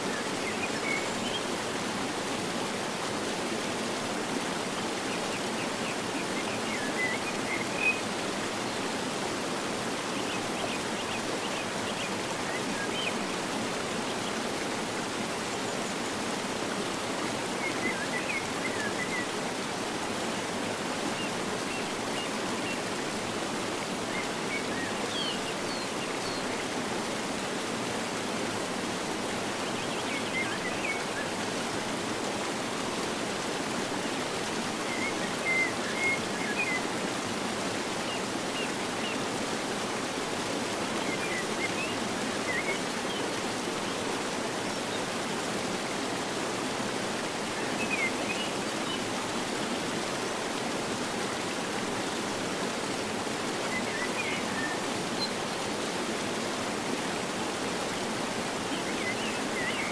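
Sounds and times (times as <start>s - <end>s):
river cascades rushing: 0.0s - 59.9s.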